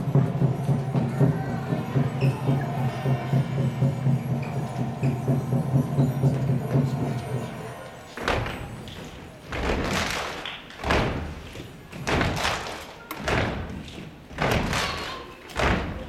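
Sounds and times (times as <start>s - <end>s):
heavy thumping beat: 0.0s - 8.9s
held music chord: 0.0s - 9.4s.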